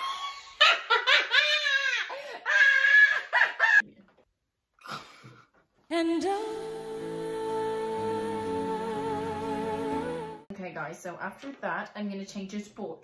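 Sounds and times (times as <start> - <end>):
girls laughing: 0.0 - 3.8
background music with sustained notes: 5.9 - 10.5.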